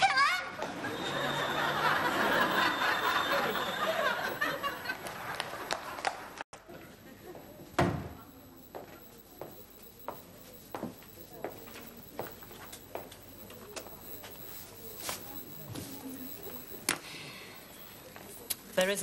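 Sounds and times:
audience laughing: 0:00.6 - 0:06.4
soft footsteps: 0:08.7 - 0:17.0.

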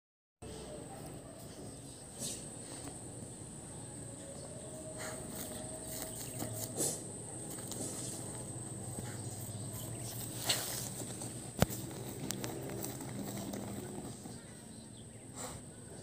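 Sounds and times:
paws scratching dry dirt: 0:04.4 - 0:14.9.

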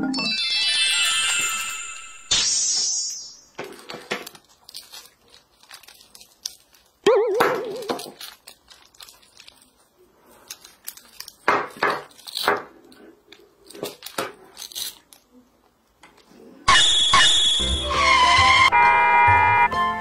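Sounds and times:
hook-and-loop fasteners ripping: 0:03.6 - 0:16.3.

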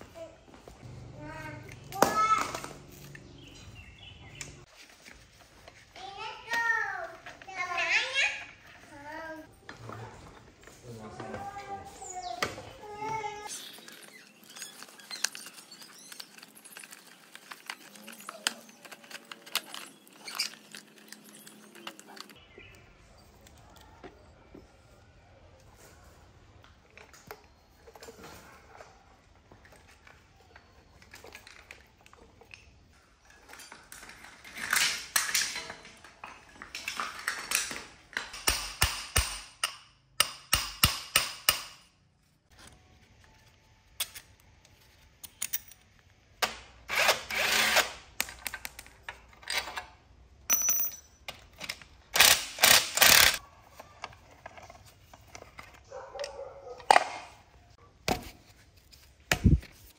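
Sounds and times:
metal parts clattering and scraping: 0:13.4 - 0:22.4, 0:29.6 - 0:38.5, 0:47.0 - 0:57.4.

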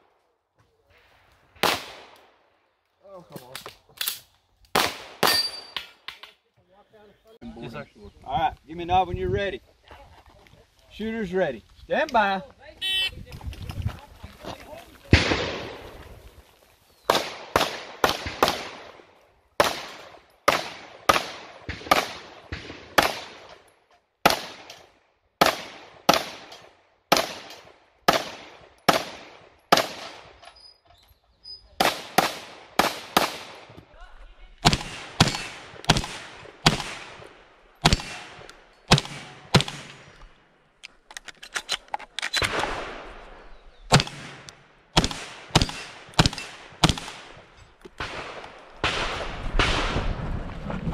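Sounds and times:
shotgun shots: 0:01.6 - 0:02.2, 0:04.8 - 0:05.8, 0:15.1 - 0:16.0, 0:17.1 - 0:19.0, 0:19.6 - 0:23.5, 0:25.4 - 0:30.4, 0:31.8 - 0:33.8, 0:34.6 - 0:40.2, 0:42.3 - 0:43.3, 0:43.9 - 0:50.3
pistol shots: 0:25.4 - 0:30.4, 0:31.8 - 0:33.7, 0:34.6 - 0:40.1, 0:43.9 - 0:47.4.

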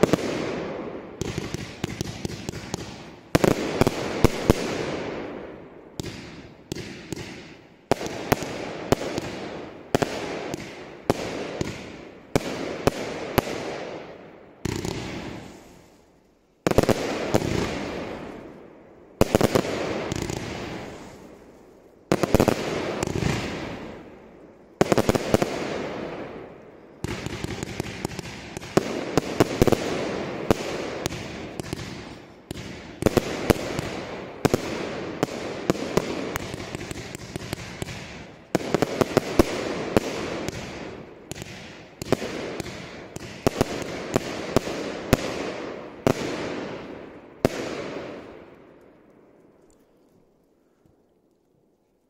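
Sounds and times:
fireworks bangs and crackling: 0:00.0 - 0:50.0.

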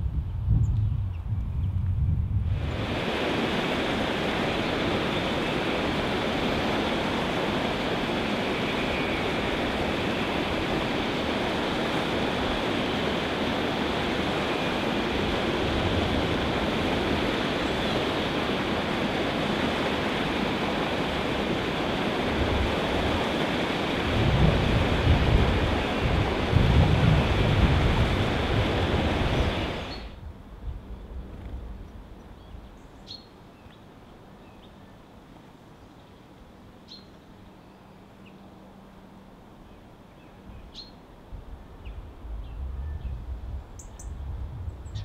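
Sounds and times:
water rushing over weir: 0:02.5 - 0:30.2.

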